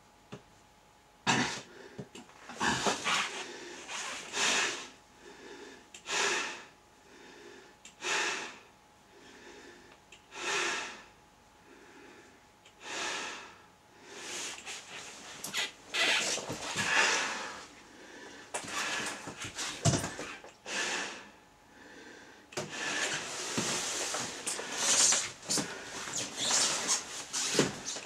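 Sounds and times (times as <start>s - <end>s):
person breathing hard through a mask: 1.3s - 15.0s, 16.7s - 28.0s.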